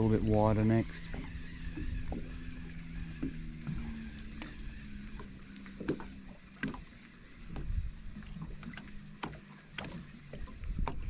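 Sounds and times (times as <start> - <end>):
wind rumble on microphone: 0.0 - 5.2, 7.4 - 9.0, 9.8 - 11.0
electric motor hum: 0.0 - 11.0
water slapping boat hull: 0.0 - 11.0.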